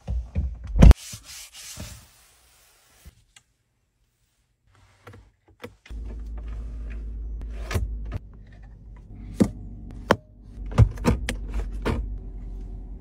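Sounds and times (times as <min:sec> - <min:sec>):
low steady hum: 0:05.9 - 0:13.0.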